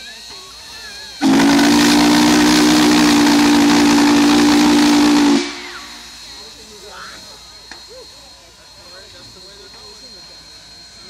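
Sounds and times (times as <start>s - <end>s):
steam whistle blowing: 1.2s - 6.2s.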